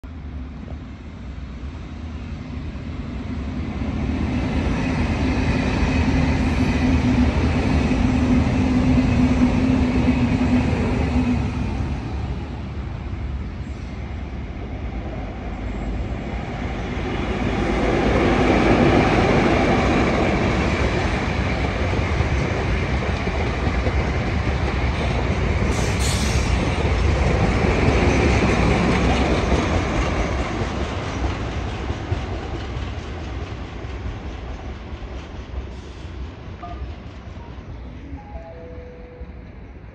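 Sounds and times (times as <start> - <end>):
train engine drone: 0.0 - 39.9
train wheels clacking on rails: 17.8 - 37.4.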